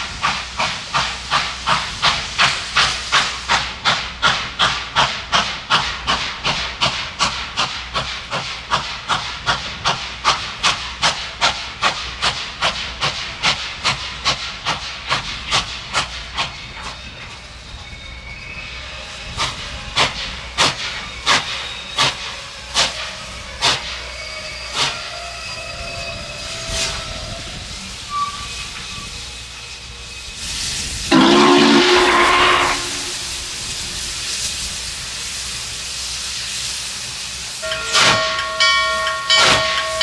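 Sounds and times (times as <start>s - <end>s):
steady steam hiss: 0.0s - 40.0s
steam locomotive exhaust chuffs: 0.0s - 40.0s.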